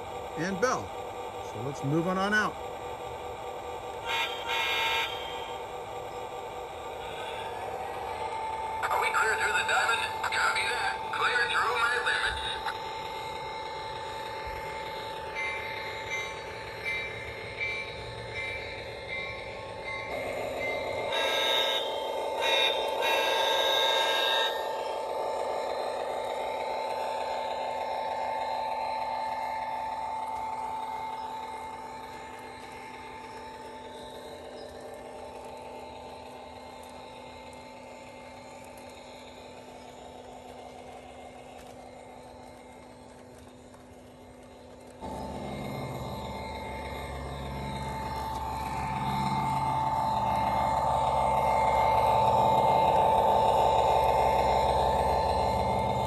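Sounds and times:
model train humming: 0.0 - 56.0
train horn chord: 4.0 - 5.3
wheels clicking over rails: 5.1 - 56.0.

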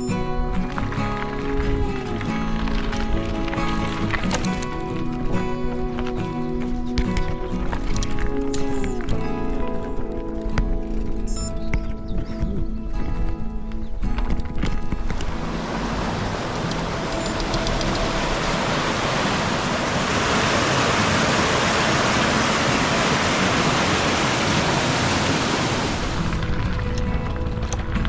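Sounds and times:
background music: 0.0 - 28.0
water rushing down a weir: 15.2 - 27.5.

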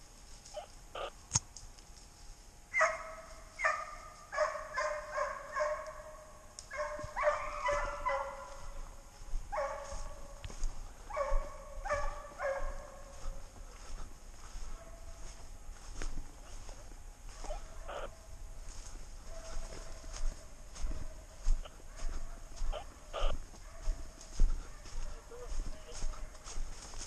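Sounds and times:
hounds baying: 2.7 - 15.5, 16.4 - 27.0.

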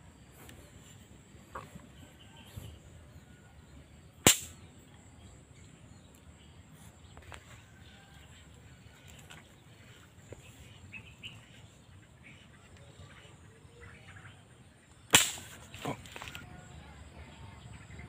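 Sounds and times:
faint bird chirps: 0.0 - 18.0
gun crack: 4.2 - 4.7, 15.1 - 16.0.

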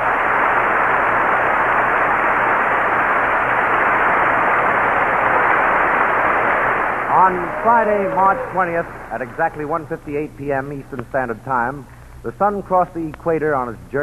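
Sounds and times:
recording hiss: 0.0 - 14.0.

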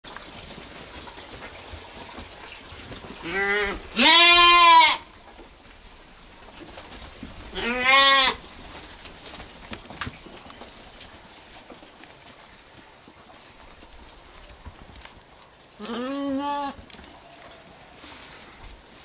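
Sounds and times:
lambs bleating: 3.2 - 5.1, 7.5 - 8.4, 15.8 - 16.8.

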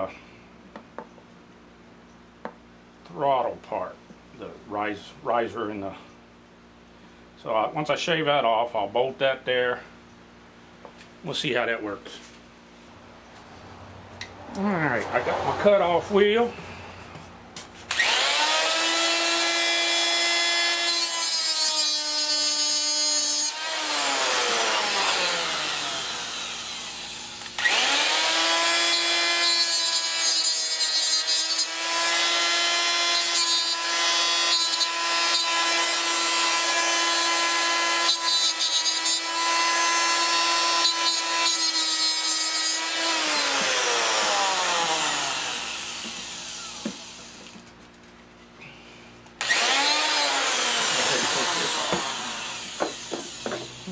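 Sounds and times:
die grinder whining: 17.9 - 47.7, 49.4 - 53.9.

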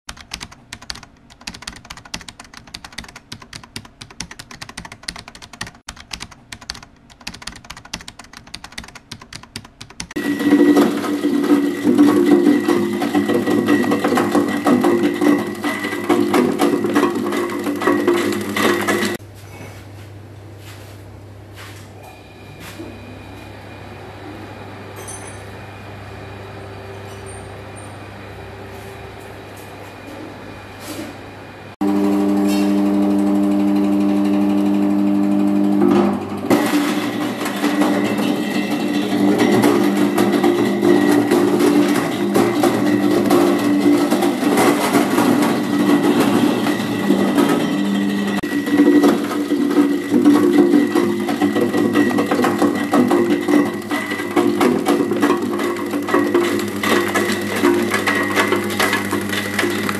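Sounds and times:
computer keyboard typing clicks: 0.1 - 10.2
ice crusher motor whine: 10.2 - 19.2, 31.8 - 59.9.

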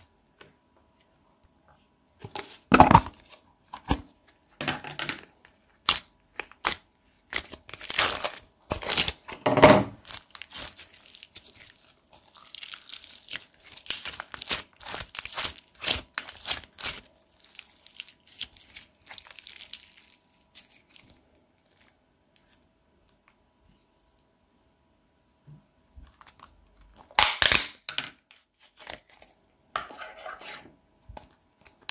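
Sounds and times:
slime squished by hand: 10.0 - 21.9.

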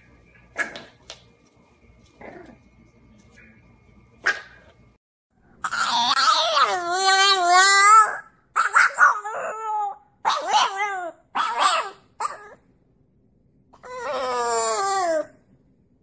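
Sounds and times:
puppy howling and yowling: 5.6 - 12.6, 13.8 - 15.4.

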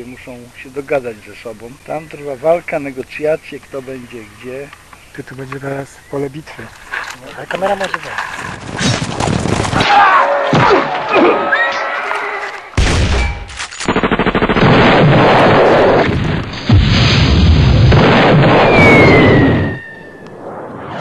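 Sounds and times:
gunfire: 12.8 - 19.8
explosions: 12.8 - 21.0
falling whistle: 18.6 - 20.5.

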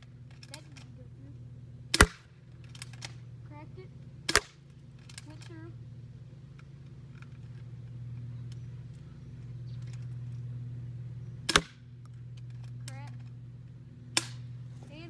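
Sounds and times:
traffic hum: 0.0 - 15.0
airsoft gun shot: 1.9 - 2.3, 4.3 - 4.6, 11.5 - 11.8, 14.2 - 14.4.

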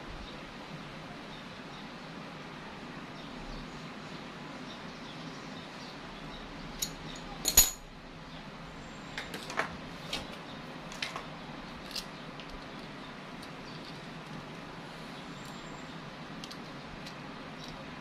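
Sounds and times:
metal tools clinking: 6.8 - 7.9.

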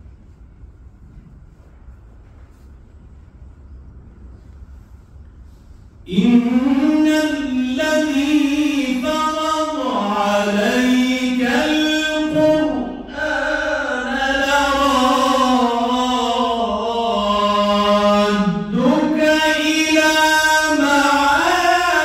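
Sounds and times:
man reciting in melodic style: 6.0 - 22.0.

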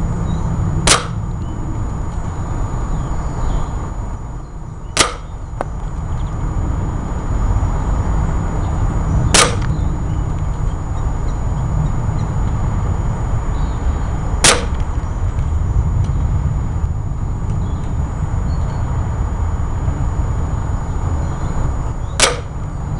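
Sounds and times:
steady low rumble: 0.0 - 22.9
gunshots: 0.9 - 1.2, 5.0 - 5.3, 9.4 - 9.6, 14.4 - 14.8, 22.2 - 22.5.

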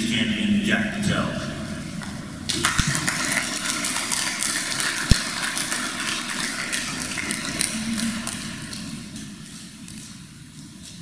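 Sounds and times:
audience clapping: 2.5 - 10.1.

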